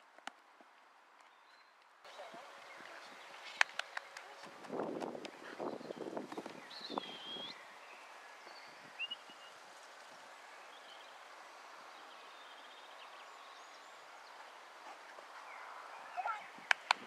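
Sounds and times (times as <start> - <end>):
faint background hiss: 0.0 - 17.0
bird chirps: 5.6 - 9.6.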